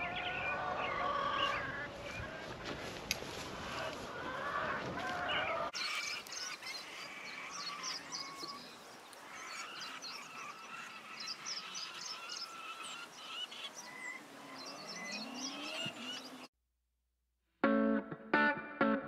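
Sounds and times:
birds chirping: 0.0s - 2.5s, 3.7s - 16.5s
steady trilling call: 5.8s - 16.5s.

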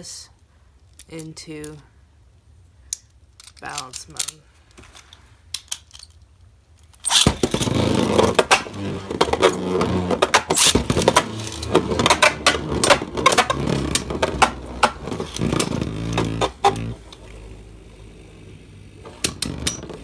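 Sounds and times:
spinning tops whirring: 7.0s - 17.2s.

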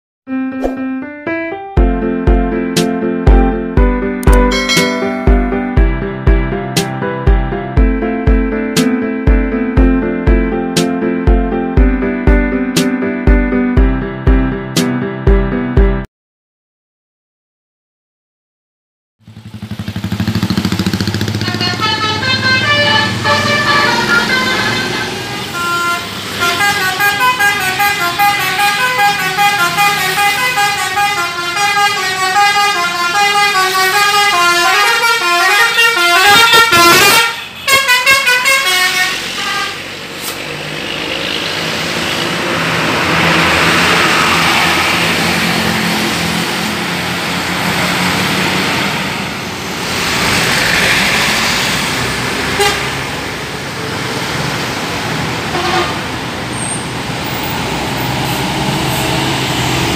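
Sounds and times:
musical bus horn tunes: 0.3s - 15.6s, 21.1s - 40.4s, 52.4s - 53.1s, 55.5s - 57.4s
bus engine hum: 19.2s - 59.9s
passing bus road noise: 19.2s - 59.9s.

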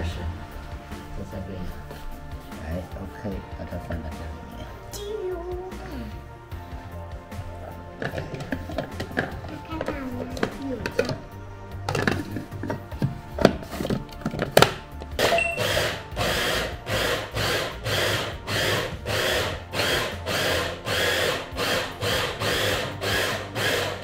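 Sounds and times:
electric meat grinder whirring: 15.2s - 24.0s.

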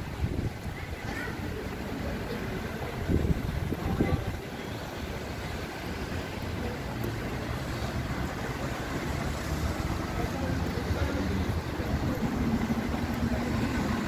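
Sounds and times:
wind on microphone: 0.0s - 1.1s, 2.8s - 4.5s
traffic rumble: 0.0s - 14.0s.

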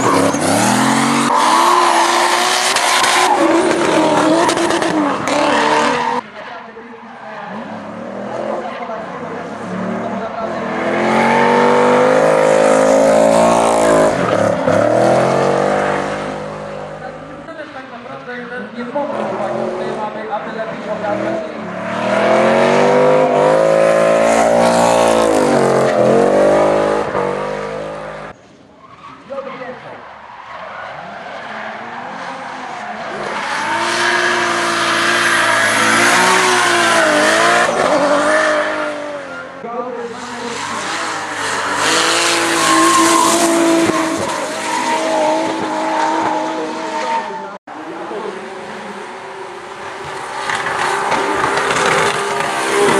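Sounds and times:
car engine revving hard: 0.0s - 6.2s, 9.5s - 17.3s, 21.0s - 28.3s, 33.1s - 39.3s, 40.7s - 47.1s
tyres screeching: 0.0s - 6.2s, 22.0s - 47.5s.

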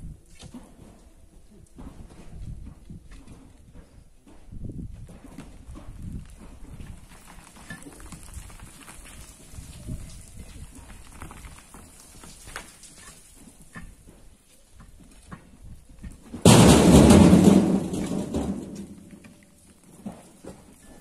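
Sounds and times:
rocks and earth falling: 5.0s - 14.0s, 15.6s - 21.0s.

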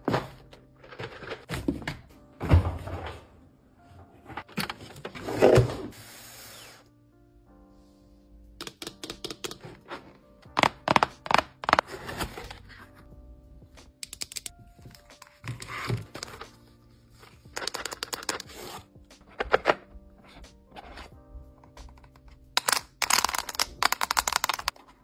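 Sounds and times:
soft background music: 0.0s - 25.0s
sharp taps and clicks of handling: 13.8s - 15.3s.

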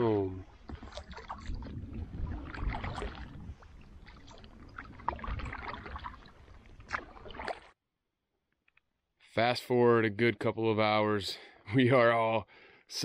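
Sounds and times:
paddle strokes: 0.0s - 7.8s
water splashing against hull: 0.0s - 7.8s
wind buffeting microphone: 0.8s - 6.3s.

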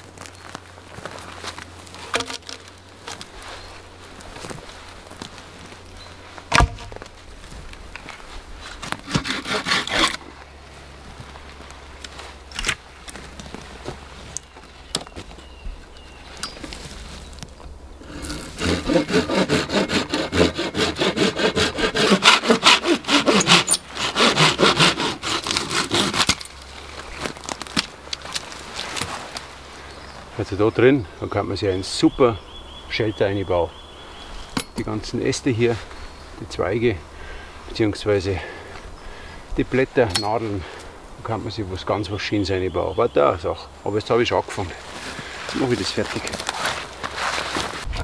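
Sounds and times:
sharp knock: 6.5s - 7.0s
hand saw cutting wood: 8.8s - 10.3s, 18.0s - 26.6s.

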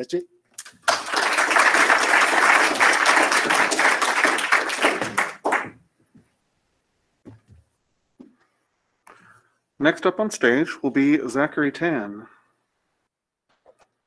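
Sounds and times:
audience applauding: 0.6s - 5.8s.

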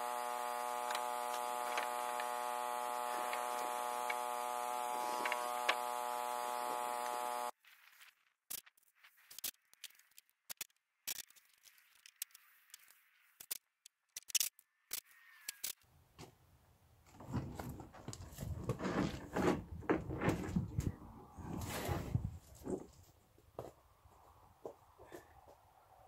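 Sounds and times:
electrical hum: 0.0s - 7.6s.

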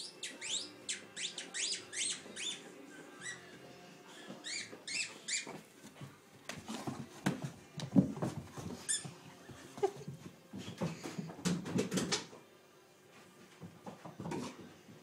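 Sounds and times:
squeaky dog toy squeaking: 0.2s - 2.6s, 4.4s - 5.5s
knocks and scuffling: 5.5s - 12.2s.

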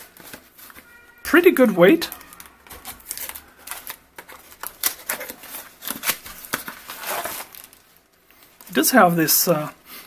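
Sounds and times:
cardboard flaps scraping and snapping: 2.7s - 7.7s.

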